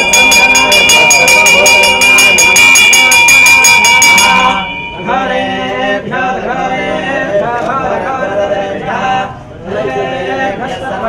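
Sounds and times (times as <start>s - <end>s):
brass bell ringing: 0.0s - 5.7s
chanting: 0.0s - 11.0s.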